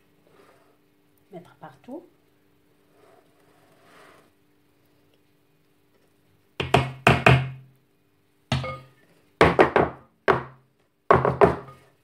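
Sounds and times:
knocks on wooden board: 0:06.6 - 0:07.6, 0:09.4 - 0:11.7.

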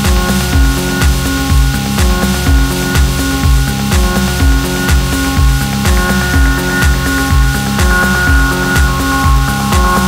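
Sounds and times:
electronic dance music: 0:00.0 - 0:10.0
kick drum: 0:00.0 - 0:10.0
held synth tones: 0:04.4 - 0:10.0.

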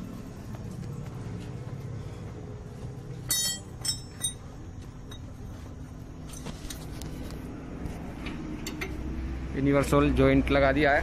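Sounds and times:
metal tools clinking: 0:03.2 - 0:05.3.

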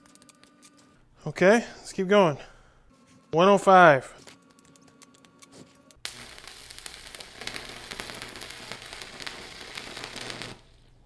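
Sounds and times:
low welder hum: 0:05.9 - 0:11.0
welding arc crackling: 0:06.0 - 0:11.0.

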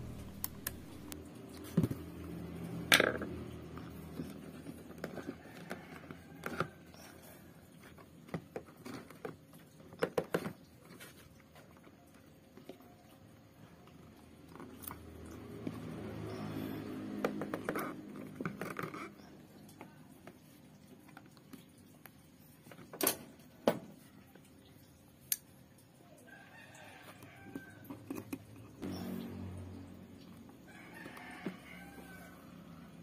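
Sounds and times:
low hum: 0:00.0 - 0:03.9
clicks and knocks of plastic parts: 0:02.9 - 0:12.8.

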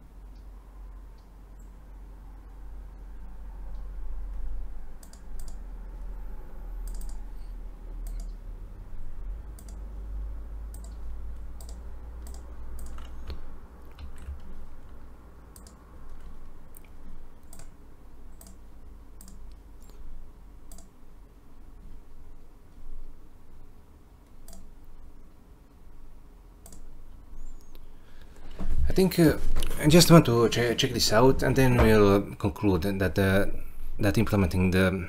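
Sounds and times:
low steady hum: 0:00.0 - 0:35.0
mouse and keyboard clicks: 0:05.0 - 0:05.6, 0:06.8 - 0:07.2, 0:08.0 - 0:08.4, 0:09.6 - 0:09.8, 0:10.7 - 0:15.0, 0:15.6 - 0:17.7, 0:18.4 - 0:18.6, 0:19.2 - 0:20.0, 0:26.6 - 0:26.9.

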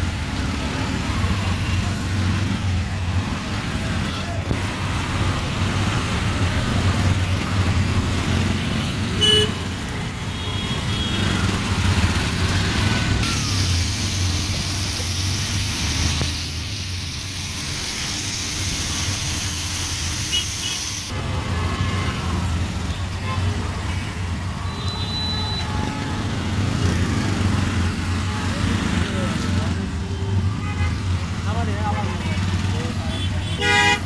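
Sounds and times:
auto-rickshaw engine running: 0:00.0 - 0:24.7
street traffic: 0:00.0 - 0:34.0
steady hiss: 0:13.3 - 0:21.1.

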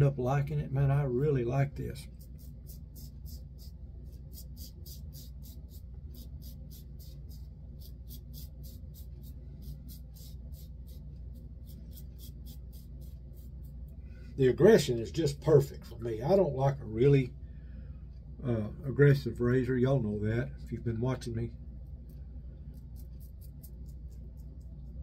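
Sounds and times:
low steady hum: 0:00.0 - 0:25.0
razor scraping stubble: 0:01.9 - 0:14.0, 0:21.9 - 0:25.0.

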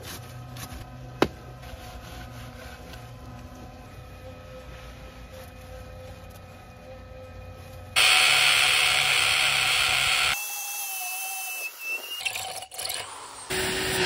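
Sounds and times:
power drill boring into concrete: 0:08.0 - 0:12.3.

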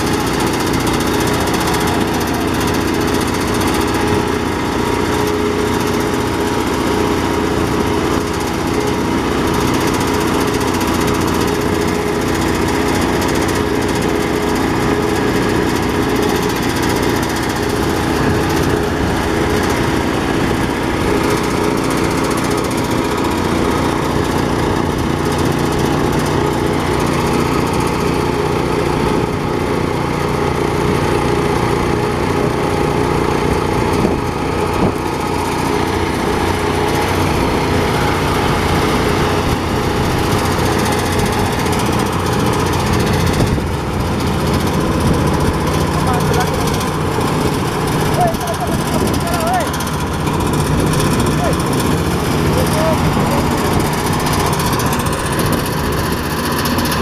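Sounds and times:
rice thresher drum spinning: 0:00.0 - 0:57.0
small engine running: 0:00.0 - 0:57.0.

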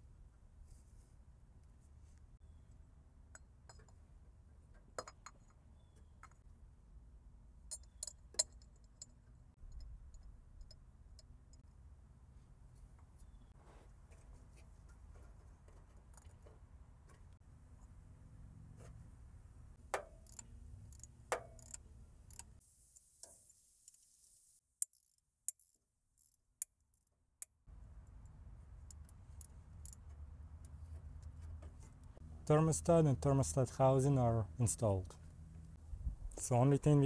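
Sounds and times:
metallic clicks of hand tools: 0:20.0 - 0:22.5.

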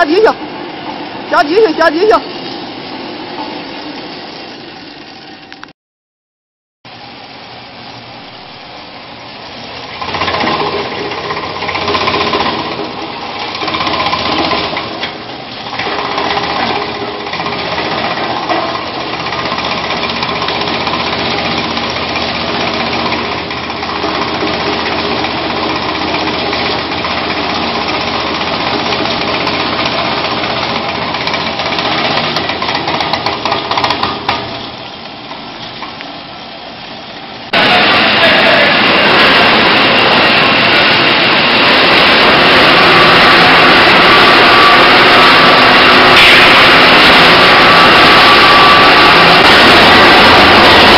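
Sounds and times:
tyre-cutting machine running: 0:09.4 - 0:35.9, 0:37.4 - 0:50.9.

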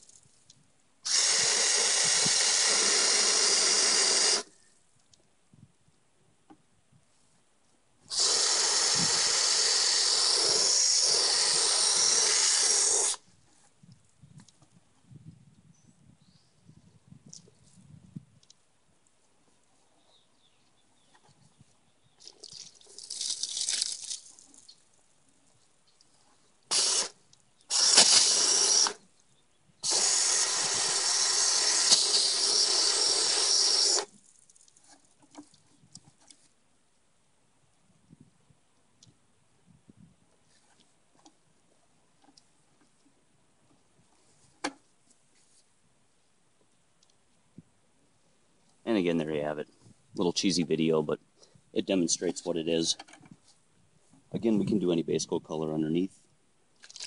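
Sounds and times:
water spraying on plastic: 0:08.1 - 0:13.2, 0:22.3 - 0:24.4, 0:26.7 - 0:29.0, 0:29.8 - 0:34.1.

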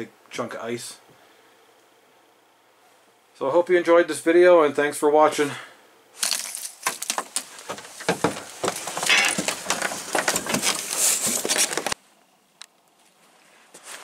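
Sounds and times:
peanuts rattling in shells: 0:06.2 - 0:07.2.

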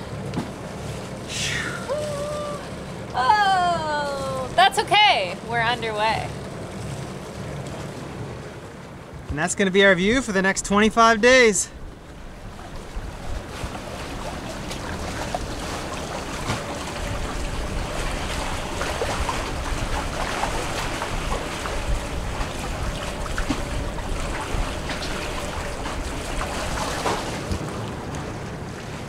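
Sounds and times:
water rushing along hulls: 0:00.0 - 0:29.0.

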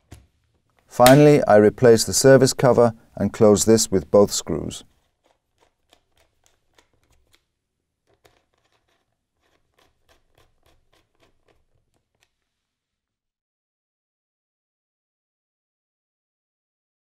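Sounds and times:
screwdriver clicking and scraping: 0:04.9 - 0:12.4.

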